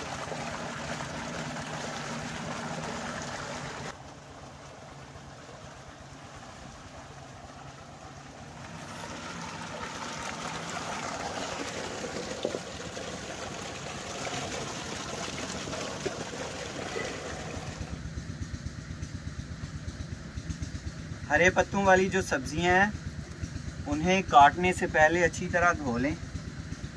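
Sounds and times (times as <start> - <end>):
water gushing from a pipe: 0.0 - 18.0.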